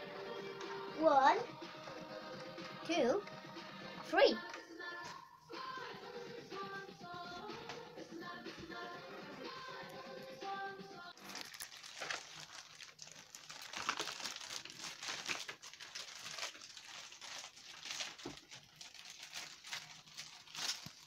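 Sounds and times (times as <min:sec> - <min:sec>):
packaging crinkling: 0:11.2 - 0:21.0.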